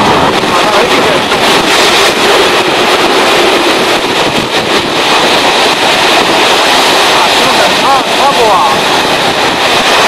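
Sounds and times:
train wheels and air rushing: 0:00.0 - 0:10.0.

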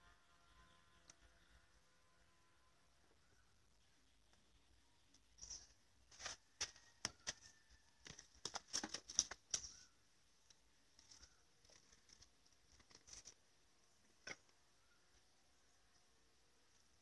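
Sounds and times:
hose rustling against plastic: 0:05.4 - 0:09.9.

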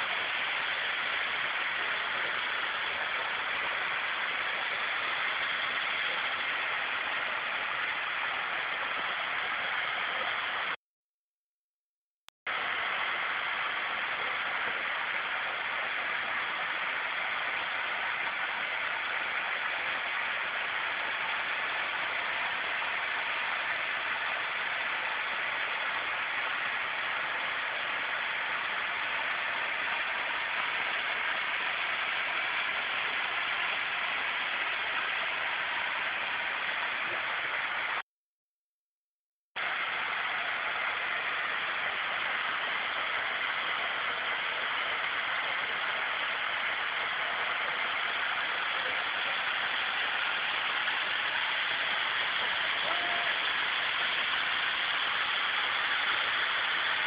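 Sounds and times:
waterfall rushing: 0:00.0 - 0:10.8, 0:39.6 - 0:57.0.

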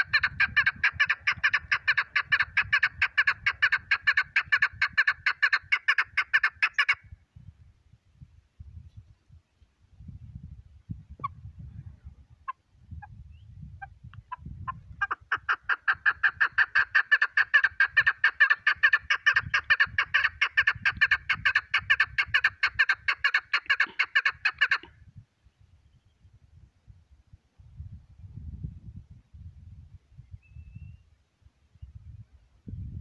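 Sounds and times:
partridge calling chuk notes: 0:00.0 - 0:07.0, 0:12.4 - 0:24.9.

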